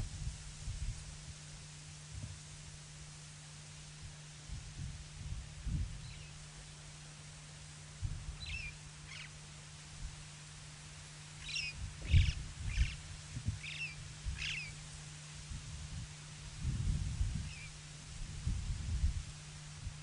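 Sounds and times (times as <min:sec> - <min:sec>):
steady low hum: 0:00.0 - 0:20.0
birds chirping: 0:08.4 - 0:09.4, 0:11.4 - 0:14.8, 0:17.5 - 0:17.7.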